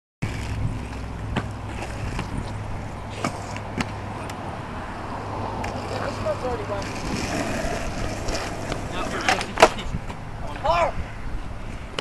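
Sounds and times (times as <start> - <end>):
skateboard wheels rumbling: 0.2 - 12.0
skateboard clacks: 6.8 - 9.9.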